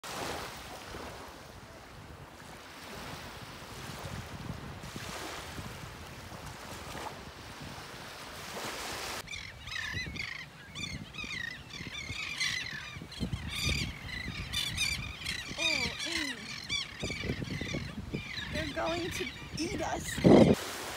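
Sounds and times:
small waves washing onto beach: 0:00.0 - 0:09.3, 0:18.0 - 0:20.9
seabirds calling: 0:09.2 - 0:20.7.

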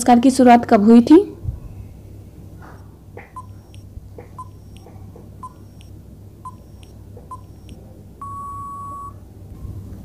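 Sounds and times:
countdown timer beeps: 0:03.4 - 0:09.2
long steady beep: 0:03.4 - 0:09.2.

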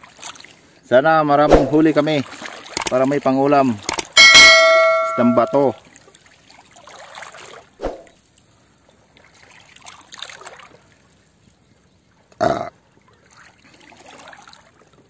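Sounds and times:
sea water lapping: 0:01.6 - 0:03.3, 0:09.1 - 0:11.3, 0:12.2 - 0:15.0.

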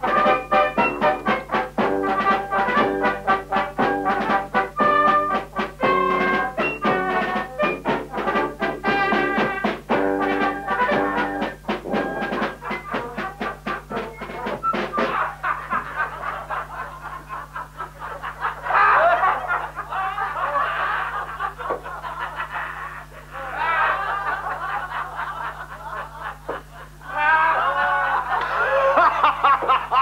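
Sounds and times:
people laughing: 0:12.5 - 0:30.0.

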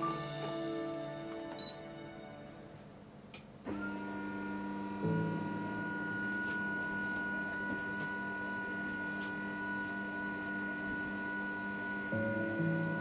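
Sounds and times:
background music with held chords: 0:00.0 - 0:03.6, 0:04.2 - 0:13.0
noodle maker motor whining: 0:03.7 - 0:12.2.

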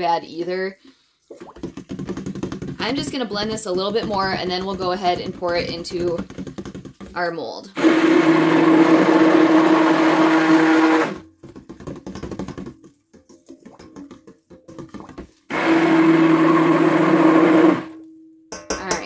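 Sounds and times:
stirring and scraping in bowl: 0:00.9 - 0:19.0
stick blender running: 0:07.8 - 0:11.3, 0:15.5 - 0:18.0.

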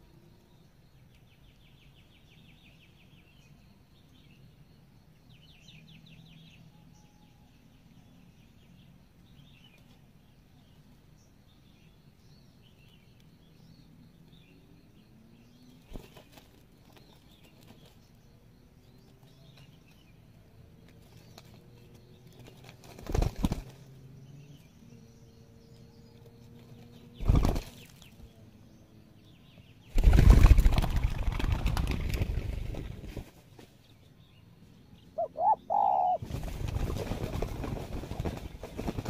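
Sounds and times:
wings flapping: 0:15.8 - 0:17.9, 0:22.4 - 0:23.9, 0:27.2 - 0:28.1, 0:29.9 - 0:33.7, 0:36.2 - 0:39.0
doves cooing: 0:35.2 - 0:36.4.

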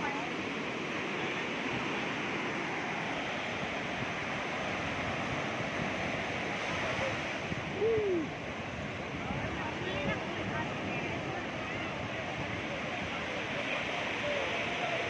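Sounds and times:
waves breaking on sand: 0:00.0 - 0:15.0.

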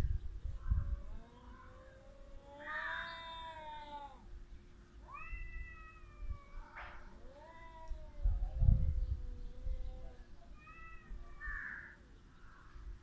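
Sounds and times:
cats yowling: 0:00.8 - 0:04.2, 0:05.0 - 0:12.0.

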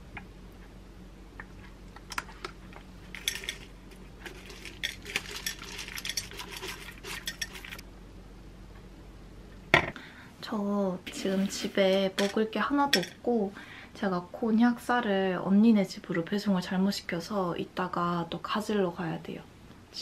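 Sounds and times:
granola rattling onto plate: 0:03.1 - 0:07.8.

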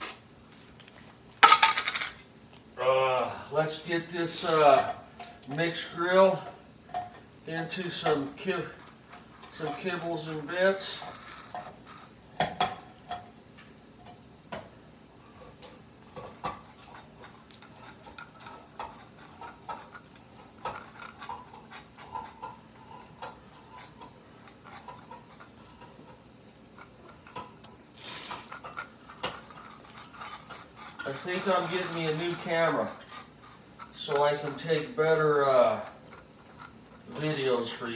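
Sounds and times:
cats chewing and lapping: 0:03.6 - 0:37.9
scraping rustle: 0:27.9 - 0:37.9.

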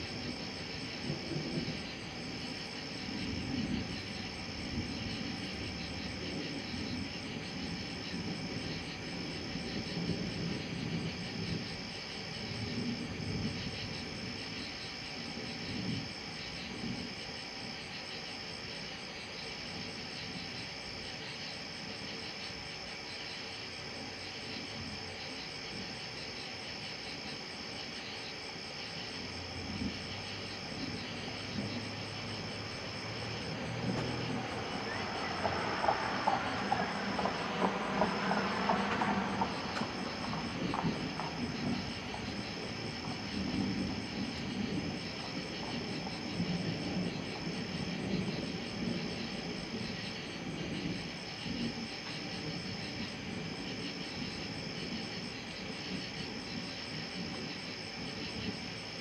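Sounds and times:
night insects trilling: 0:00.0 - 0:59.0
low rumble: 0:31.6 - 0:45.2.

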